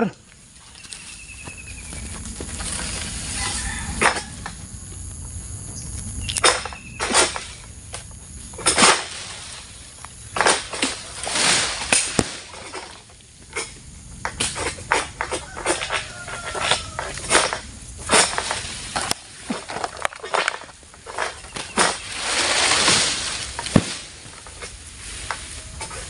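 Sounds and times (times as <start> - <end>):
fronds shaking: 0.0 - 4.4, 8.4 - 13.3, 14.9 - 26.0
sickle cutting through palm fronds: 2.5 - 4.4, 8.5 - 13.7, 14.5 - 26.0.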